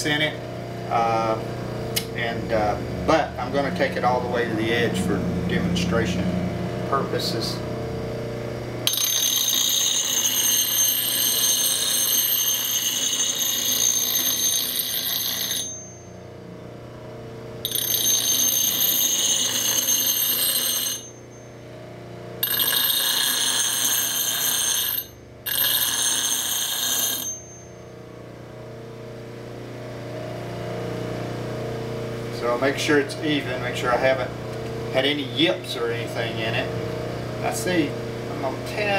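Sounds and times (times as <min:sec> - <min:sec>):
bench grinder motor hum: 0:08.0 - 0:16.2, 0:17.6 - 0:21.4, 0:22.4 - 0:27.7.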